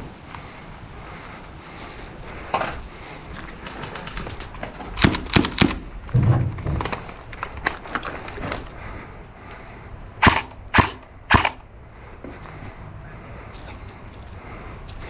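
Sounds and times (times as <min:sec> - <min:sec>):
airsoft rifle shots: 0:10.2 - 0:11.6.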